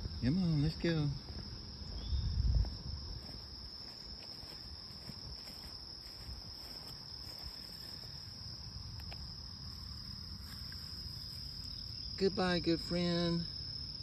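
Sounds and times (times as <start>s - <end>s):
insects chorus: 0.0s - 14.0s.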